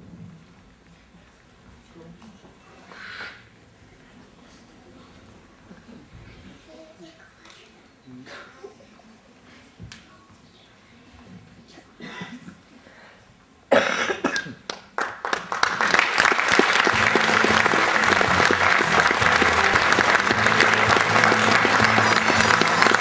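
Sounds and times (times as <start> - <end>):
audience applause: 14.7 - 23.0.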